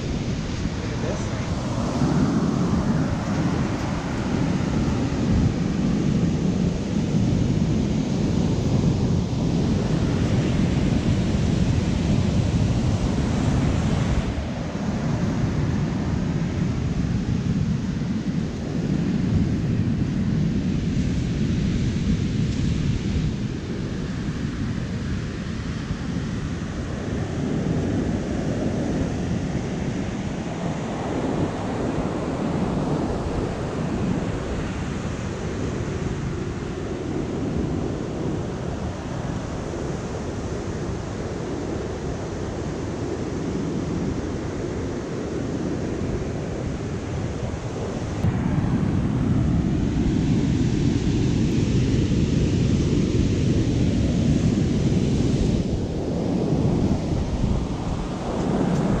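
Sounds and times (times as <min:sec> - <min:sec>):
ocean surf breaking: 0:00.0 - 0:06.6
wind buffeting microphone: 0:00.0 - 0:59.0.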